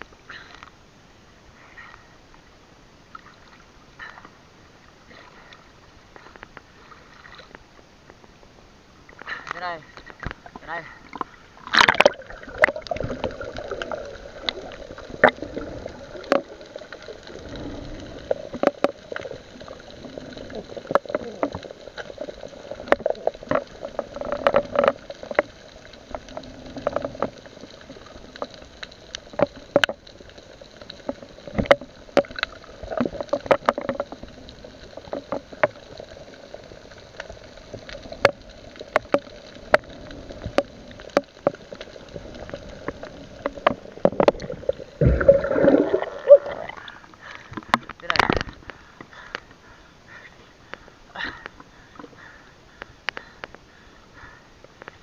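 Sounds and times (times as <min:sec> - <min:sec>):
underwater water rush: 0:00.0 - 0:55.0.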